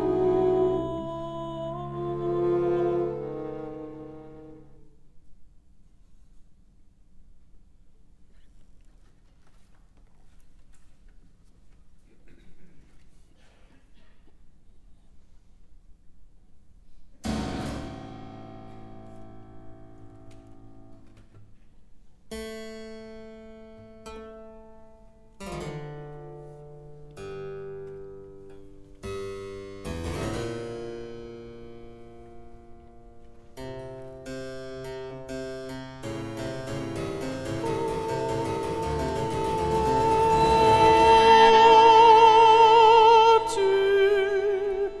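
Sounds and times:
long held tones: 0:00.0 - 0:04.9, 0:36.6 - 0:45.0
harpsichord chords: 0:17.2 - 0:20.3, 0:29.1 - 0:42.5.

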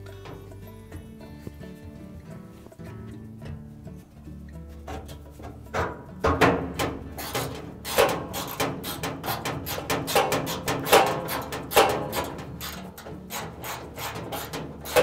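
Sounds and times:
metal knocks: 0:04.7 - 0:15.0
socket wrench clicking: 0:07.0 - 0:15.0.

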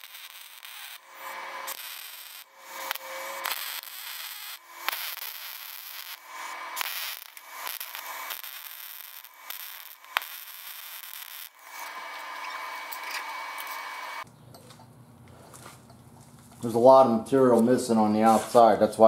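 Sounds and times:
welding arc crackling hiss: 0:00.0 - 0:14.3.

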